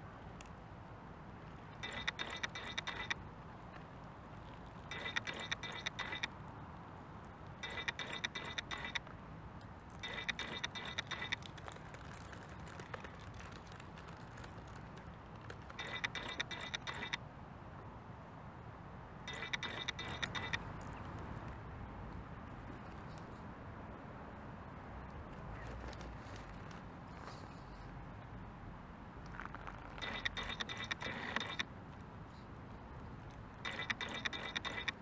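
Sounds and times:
gear clatter and clicking: 1.7s - 3.2s, 4.5s - 6.3s, 7.6s - 9.1s, 9.9s - 17.2s, 19.3s - 21.0s, 29.3s - 31.7s, 33.6s - 35.0s.

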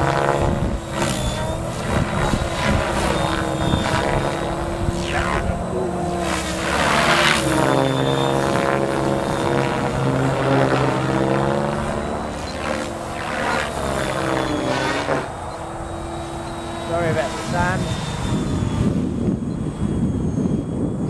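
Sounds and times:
rc helicopter rotor and motor whine: 0.0s - 21.0s.

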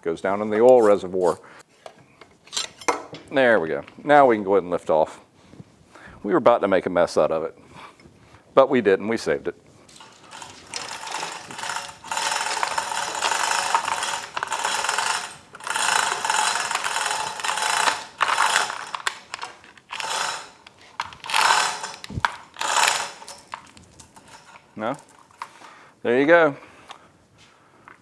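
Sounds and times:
chain hoist clicking and rattling: 9.9s - 25.7s.

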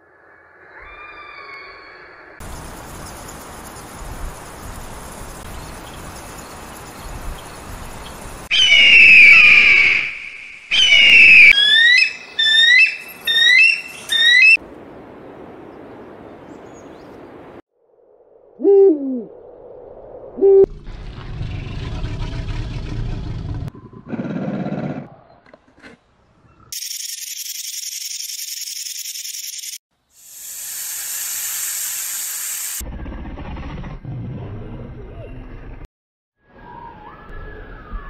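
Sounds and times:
owl hooting: 8.5s - 14.6s, 18.6s - 19.3s.

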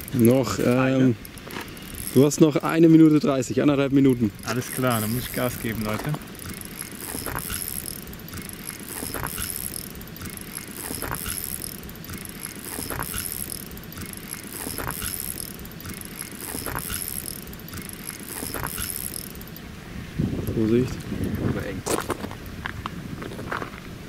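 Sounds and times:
fishing reel ratcheting whir: 0.0s - 19.7s
light reel click: 0.0s - 19.7s.

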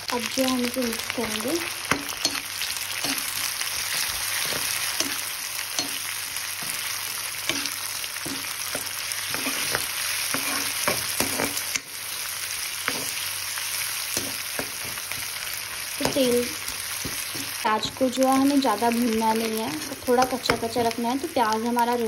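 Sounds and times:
onion sizzling in oil: 0.0s - 22.0s
spoon scraping a pan: 1.2s - 11.9s, 12.8s - 13.2s.

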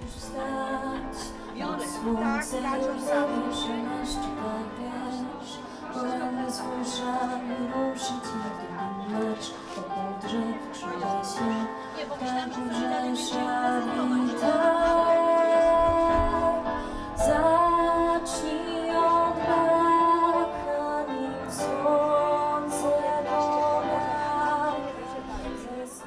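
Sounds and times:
woman singing with music: 0.0s - 26.0s.

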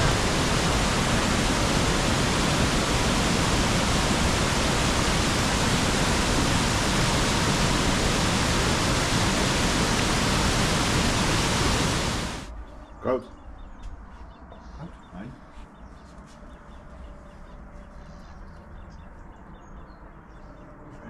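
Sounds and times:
waterfall rushing: 0.0s - 12.5s.

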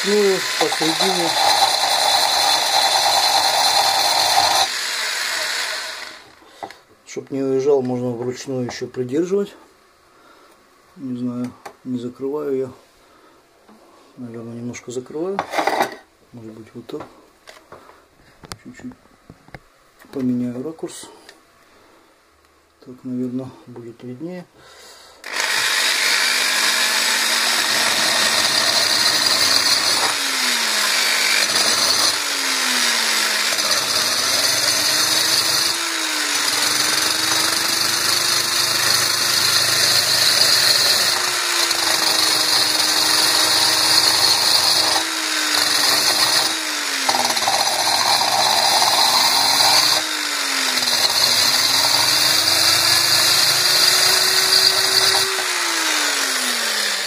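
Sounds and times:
electric drill grinding into ceramic: 0.0s - 6.8s, 25.2s - 57.0s.

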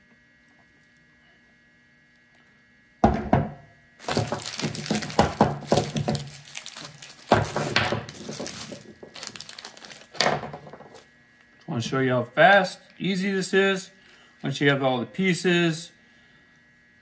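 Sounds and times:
plastic bag crinkling: 4.0s - 11.1s.

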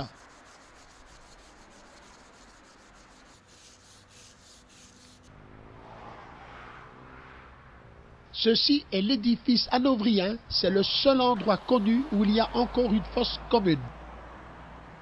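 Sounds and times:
brush scrubbing stone: 0.0s - 5.3s.

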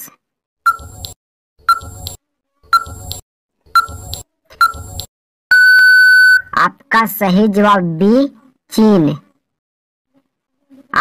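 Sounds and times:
countdown timer beeping ticks: 0.7s - 2.2s, 2.8s - 3.2s.

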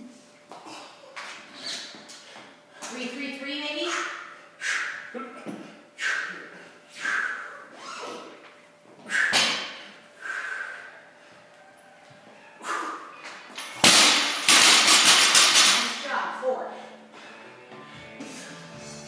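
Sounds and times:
heavy breathing: 3.9s - 8.4s, 9.0s - 11.7s, 12.6s - 13.5s, 16.6s - 19.0s
barbell dropped on rubber floor: 13.6s - 16.0s.

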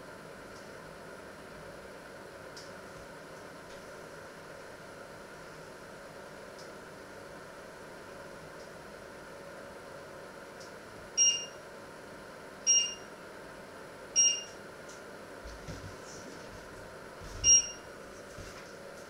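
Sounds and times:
short electronic beeps: 11.2s - 11.6s, 12.7s - 13.1s, 14.2s - 14.6s, 17.4s - 17.8s.

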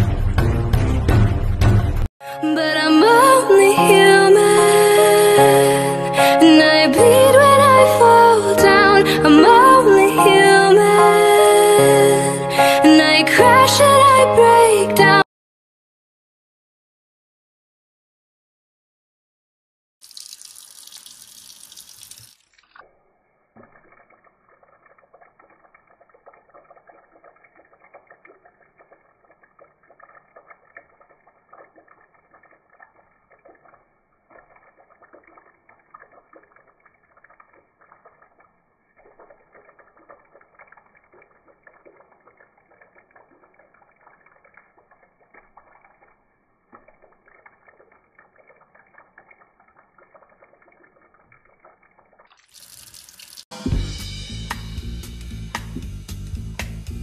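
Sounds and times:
tap water running into steel sink: 20.0s - 53.9s.

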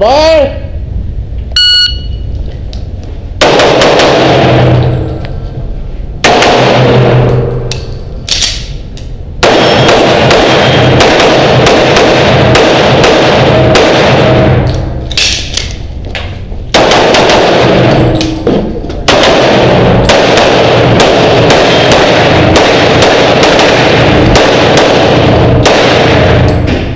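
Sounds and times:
rapid pistol shots echoing: 3.4s - 5.1s, 6.2s - 7.6s, 9.4s - 15.6s, 16.7s - 26.9s.

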